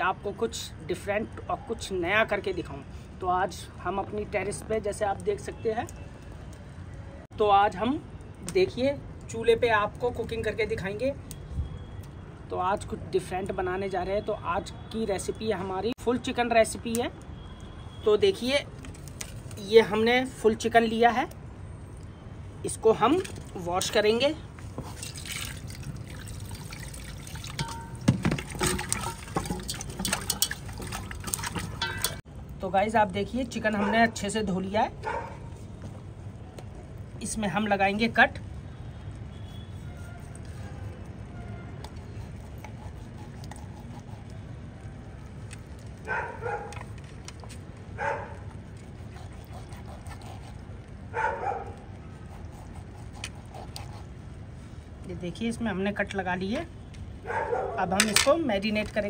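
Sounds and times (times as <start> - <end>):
water splashing and trickling: 22.0 - 32.5.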